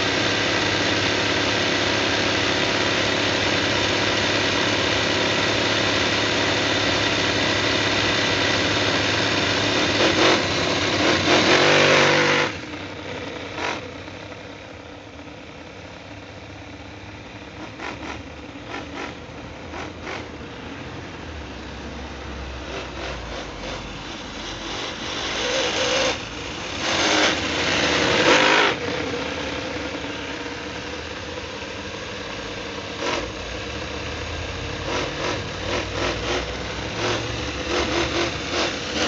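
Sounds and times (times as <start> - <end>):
model car engine idling and revving: 0.0 - 39.0.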